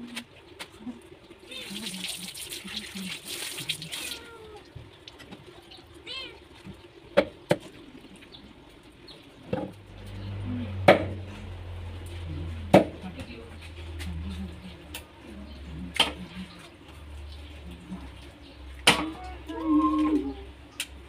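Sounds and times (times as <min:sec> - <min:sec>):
tap water running: 0:01.3 - 0:09.7.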